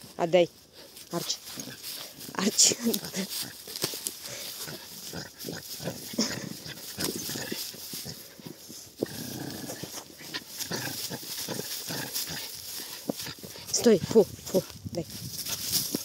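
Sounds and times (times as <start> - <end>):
dog growling and grunting: 1.5 - 14.2.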